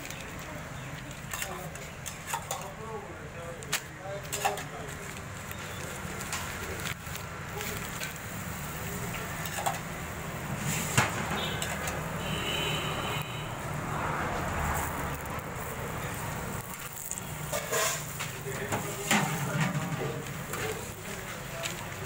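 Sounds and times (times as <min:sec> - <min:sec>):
oil sizzling on griddle: 0:05.7 - 0:12.2, 0:14.3 - 0:22.0
metal spatula scraping griddle: 0:10.6 - 0:12.0, 0:16.7 - 0:21.0.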